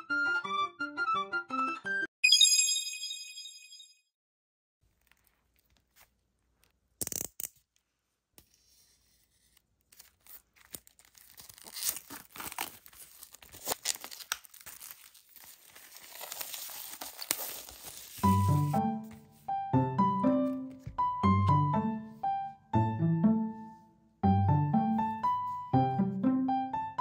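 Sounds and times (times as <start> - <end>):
plastic wrap tearing: 10.0 - 18.7
plastic crinkling: 10.1 - 18.7.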